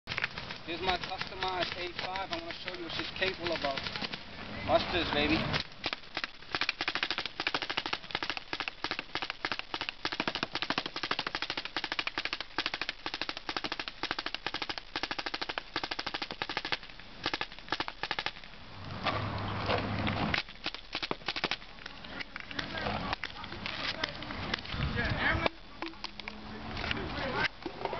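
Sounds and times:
paintball marker rapid firing: 0.7s - 4.2s, 5.2s - 18.4s, 20.3s - 21.7s.

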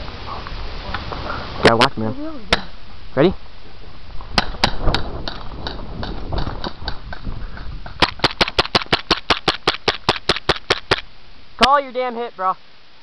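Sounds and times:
airsoft pistol shots: 8.0s - 11.0s.

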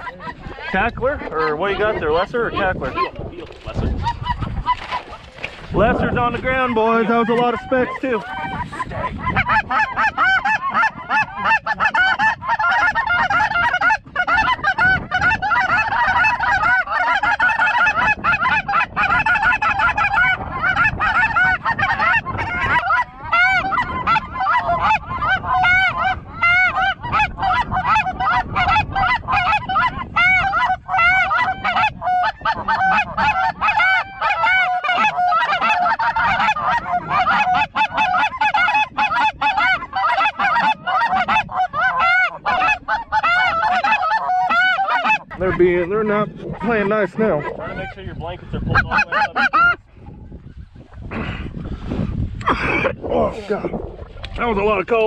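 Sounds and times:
geese honking overhead: 0.0s - 55.0s
goose calls blown: 7.3s - 45.4s.

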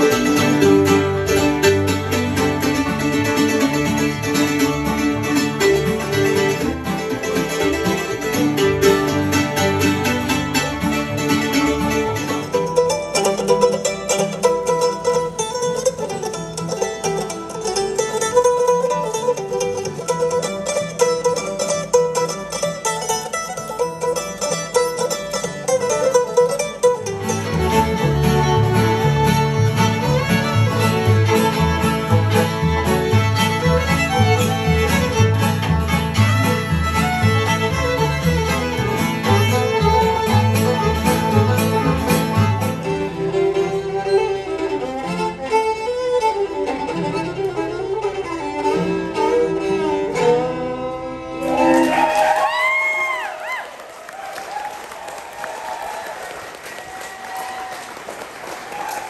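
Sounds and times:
mandolin picking: 0.0s - 52.1s
fiddle playing: 0.0s - 53.6s.

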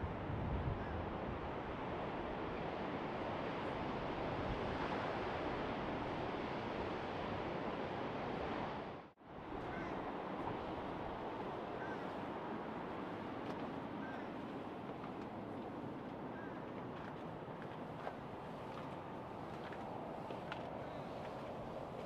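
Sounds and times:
wind on microphone: 0.0s - 7.6s
sea surf breaking on shore: 0.9s - 22.0s.

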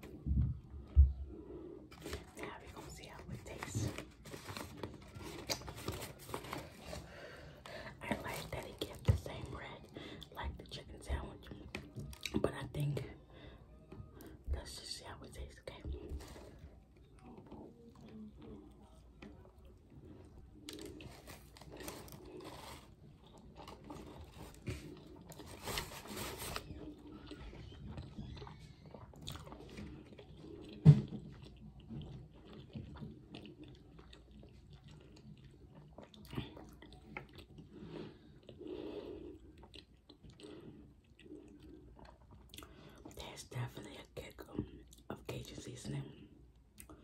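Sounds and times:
crunchy chewing: 16.0s - 43.1s.

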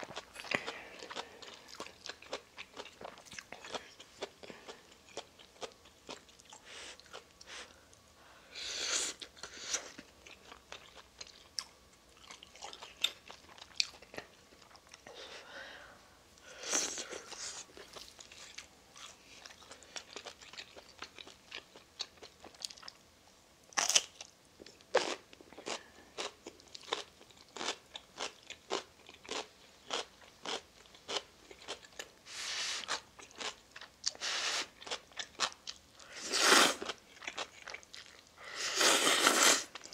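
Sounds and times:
chewing and mouth sounds: 0.0s - 8.0s, 16.9s - 23.0s, 36.8s - 38.4s
noodle slurps: 38.6s - 39.7s.

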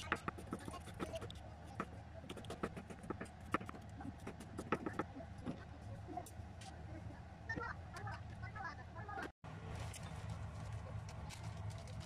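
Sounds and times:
knife chopping on wooden board: 0.0s - 5.1s.

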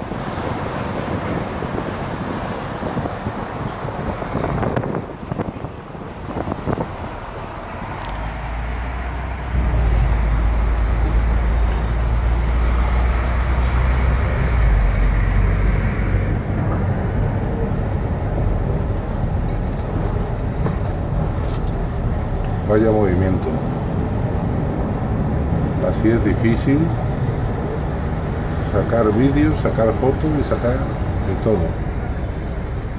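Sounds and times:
bus engine running: 0.0s - 32.9s
street traffic: 0.0s - 32.9s
deep low rumble: 3.0s - 22.7s.

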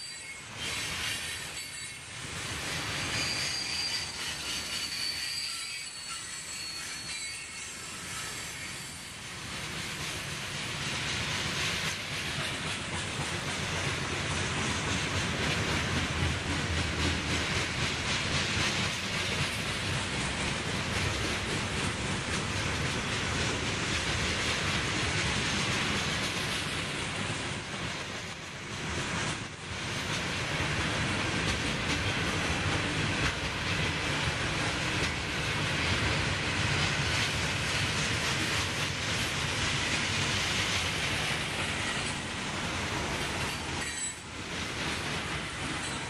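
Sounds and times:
freight cars rumbling on rails: 8.5s - 46.0s.

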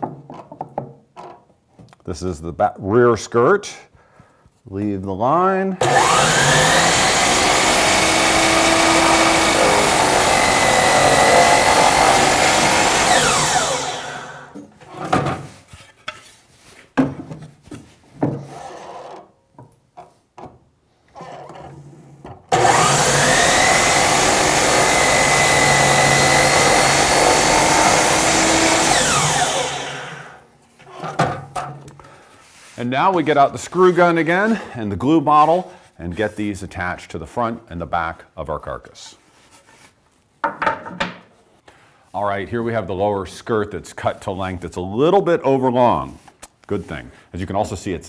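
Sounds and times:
miter saw cutting wood: 5.8s - 14.6s, 22.5s - 30.4s.

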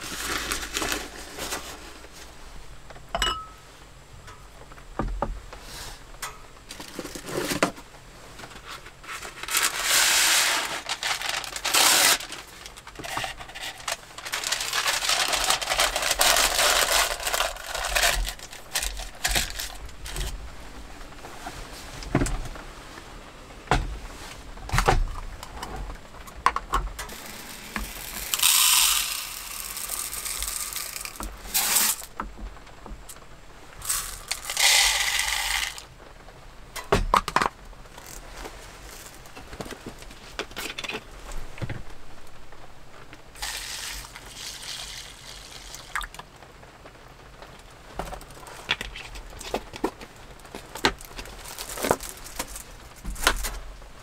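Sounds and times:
plastic handling: 0.0s - 3.0s, 6.7s - 22.7s, 47.4s - 54.0s.

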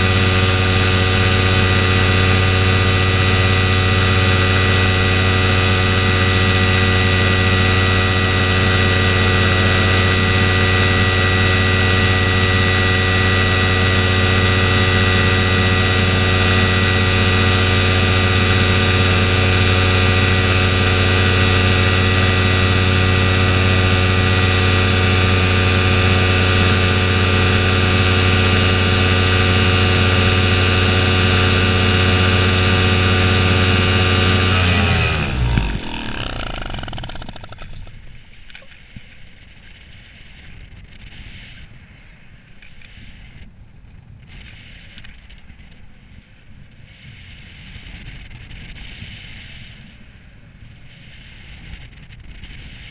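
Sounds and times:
paramotor engine droning: 0.0s - 38.7s.

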